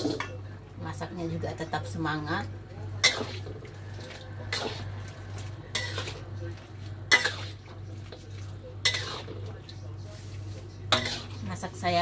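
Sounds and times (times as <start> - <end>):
metal utensil scraping a pot: 3.0 - 6.2, 8.8 - 9.4, 10.9 - 11.7.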